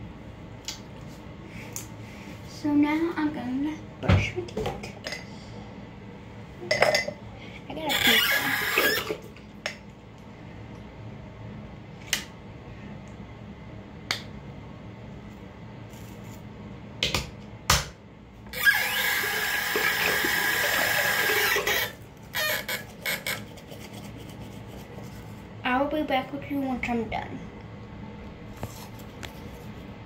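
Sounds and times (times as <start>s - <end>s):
tap running water: 7.9s - 9.8s, 18.6s - 22.0s.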